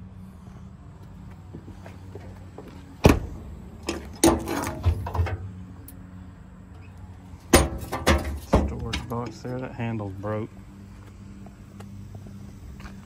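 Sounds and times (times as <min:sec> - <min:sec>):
truck door slamming: 0:03.0 - 0:05.5.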